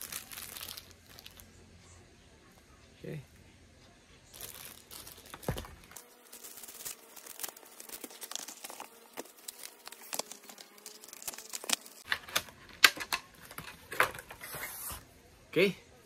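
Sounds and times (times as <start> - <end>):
plastic packaging crinkling: 0.0 - 1.4, 4.4 - 12.3.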